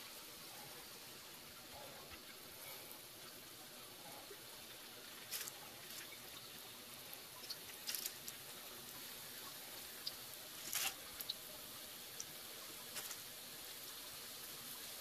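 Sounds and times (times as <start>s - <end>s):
oil popping and crackling: 1.6s - 15.0s
oil sizzling in frying pan: 5.1s - 15.0s.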